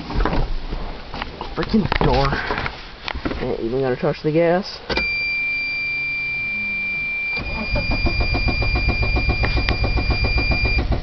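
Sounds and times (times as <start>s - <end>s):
dashboard warning tone: 4.9s - 11.0s
faint hum: 5.0s - 10.8s
starter cranking engine: 7.4s - 11.0s.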